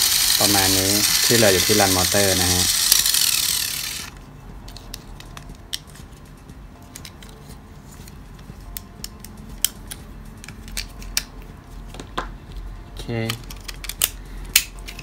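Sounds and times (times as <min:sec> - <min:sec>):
sharp plastic snaps: 0:13.3 - 0:15.0.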